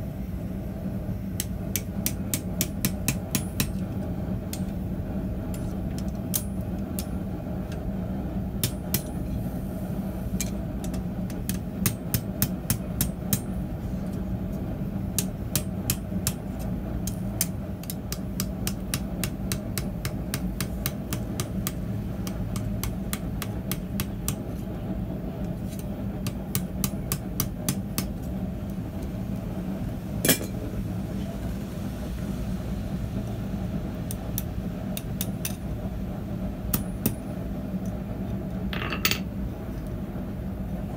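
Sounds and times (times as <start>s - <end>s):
hammer striking hot steel on anvil: 1.3s - 7.8s, 8.6s - 9.3s, 10.4s - 13.6s, 15.1s - 24.5s, 25.7s - 28.2s, 30.2s - 30.7s, 34.4s - 35.6s, 36.7s - 37.3s.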